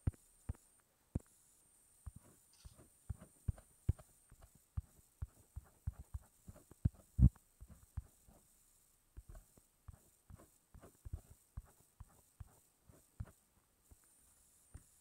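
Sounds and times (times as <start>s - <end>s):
fingers tapping a touchscreen: 2.1s - 8.2s.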